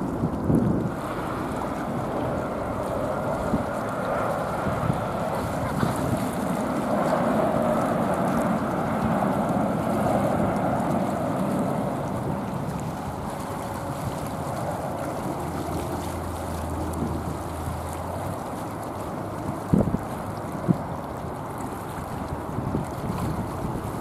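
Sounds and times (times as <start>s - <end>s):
distant jet engines rumbling: 0.0s - 24.0s
wind noise on microphone: 0.0s - 24.0s.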